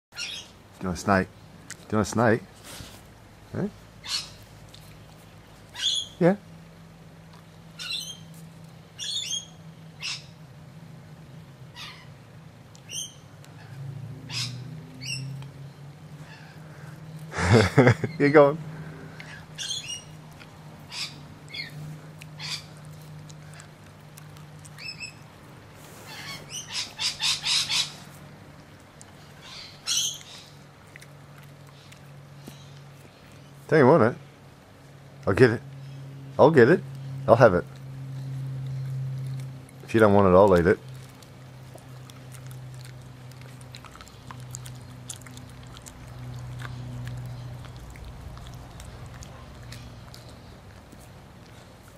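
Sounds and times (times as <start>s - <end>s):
teeth clicking on chew: 21.5s - 25.3s, 30.0s - 33.5s, 37.7s - 51.9s.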